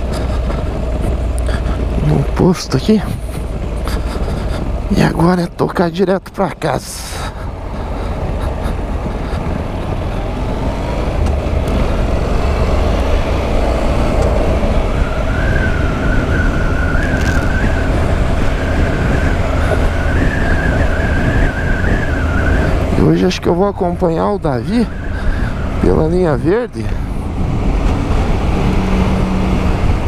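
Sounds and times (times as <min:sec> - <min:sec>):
motorcycle engine: 0:00.0 - 0:30.0
wind rushing over microphone: 0:06.5 - 0:30.0.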